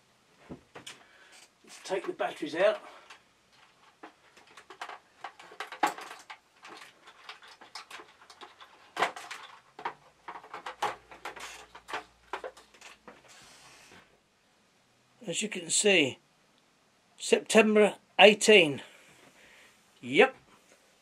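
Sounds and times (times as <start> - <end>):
rustle: 0.0 - 14.2
small clicks and knocks: 3.0 - 13.4.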